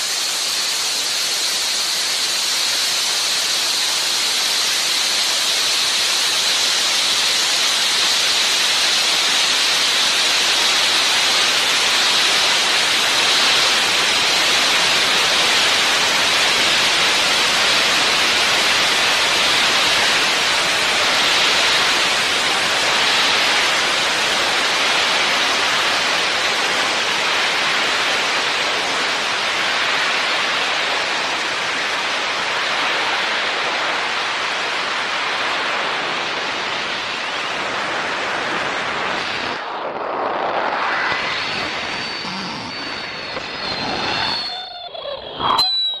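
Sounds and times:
rushing hiss: 0:00.0 - 0:45.6
faint high whine: 0:00.0 - 0:46.0
crackles: 0:03.4 - 0:46.0.

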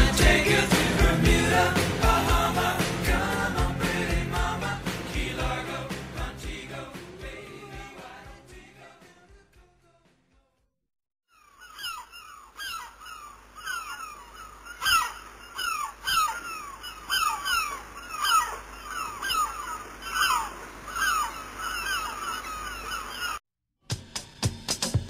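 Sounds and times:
gulls calling: 0:11.3 - 0:23.4.

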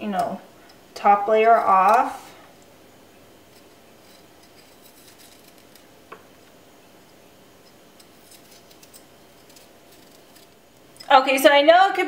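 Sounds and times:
knife scraping ginger skin: 0:03.5 - 0:05.9, 0:07.6 - 0:11.1.

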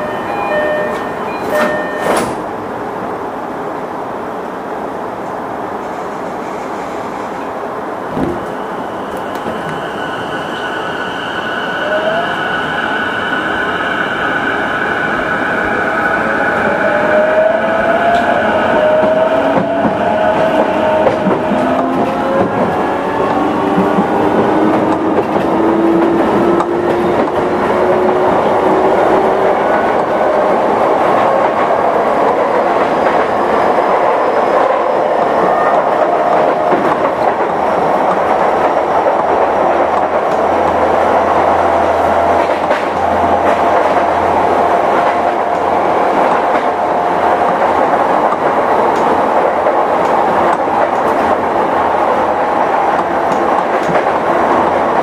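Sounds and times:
wheels rumbling on rail: 0:00.0 - 0:55.0
light rail clicks: 0:47.4 - 0:49.2, 0:52.9 - 0:54.3.

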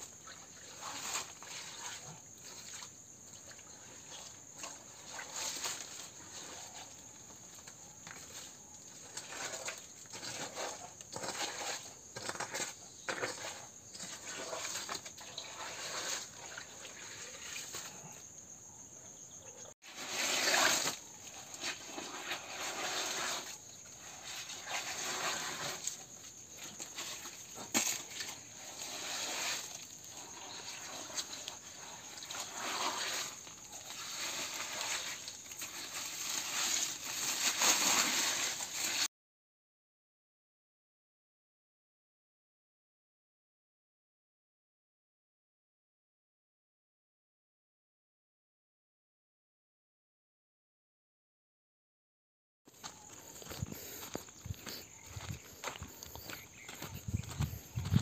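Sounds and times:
hands scraping wet soil and gravel: 0:00.0 - 0:18.2, 0:19.8 - 0:39.1, 0:52.7 - 0:58.0.

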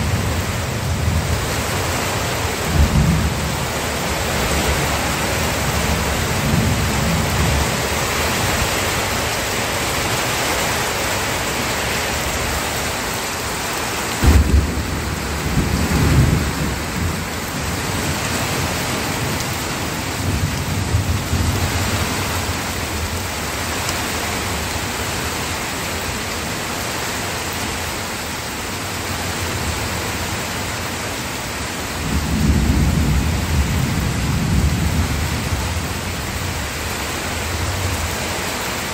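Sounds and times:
low thunder rumbling: 0:00.0 - 0:09.3, 0:14.1 - 0:23.2, 0:32.0 - 0:36.9
steady rain: 0:00.0 - 0:38.9.

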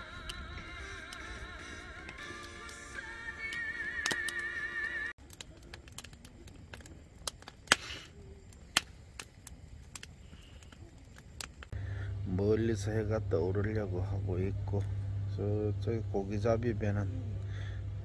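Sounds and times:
background music: 0:00.0 - 0:05.1
wood fire crackling and popping: 0:00.0 - 0:15.3.

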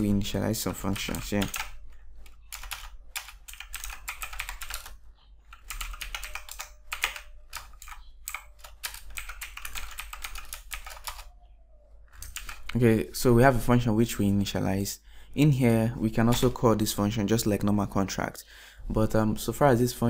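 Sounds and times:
typing on computer keyboard: 0:00.6 - 0:11.3, 0:12.2 - 0:12.8.

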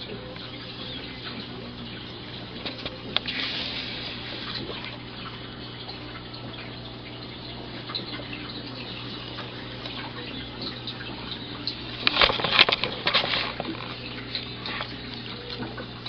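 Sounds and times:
steady low hum: 0:00.0 - 0:16.0
rustling handling noise: 0:12.0 - 0:15.0.

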